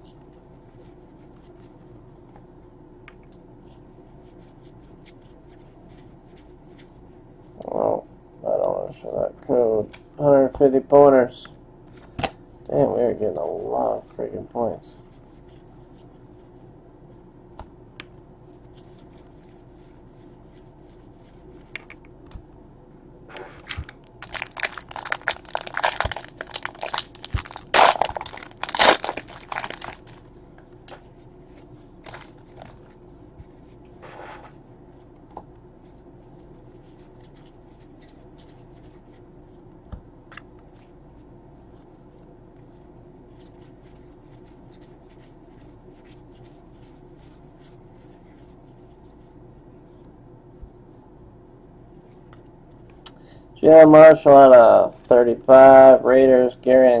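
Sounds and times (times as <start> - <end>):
trading cards rustling: 23.7 - 30.3, 32.0 - 33.0.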